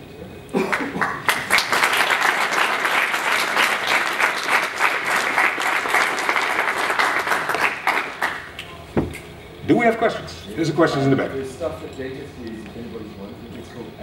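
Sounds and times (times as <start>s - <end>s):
audience applauding: 0.6s - 8.8s.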